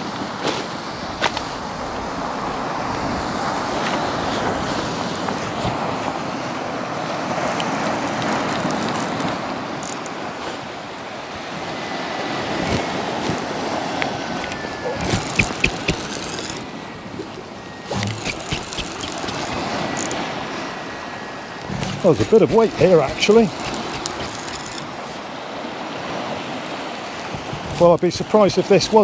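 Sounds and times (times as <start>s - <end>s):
wind on microphone: 12.4s - 25.3s, 26.0s - 28.0s
surf washing over pebbles: 21.6s - 29.0s.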